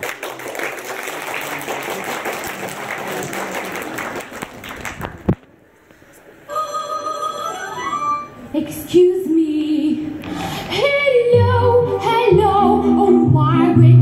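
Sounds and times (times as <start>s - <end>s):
audience applauding: 0.0s - 5.4s.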